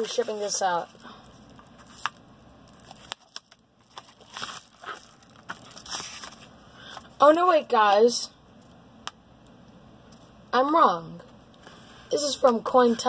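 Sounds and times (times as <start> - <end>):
bubble mailer crinkling: 0.8 - 6.5.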